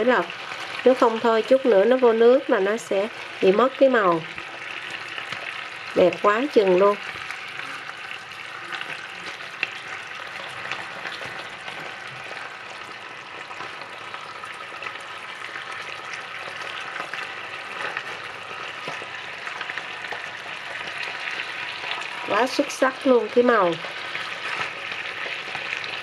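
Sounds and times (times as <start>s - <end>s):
meat sizzling in a wok: 0.0s - 26.0s
small crackles: 0.0s - 26.0s.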